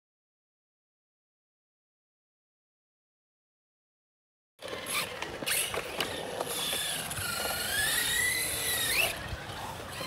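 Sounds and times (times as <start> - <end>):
electric toy car motor whining: 4.6 - 10.0.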